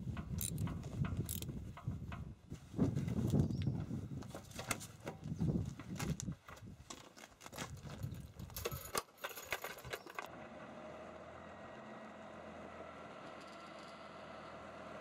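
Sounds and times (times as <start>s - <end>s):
metallic clicks and clinks: 0.2s - 1.5s, 7.9s - 10.3s.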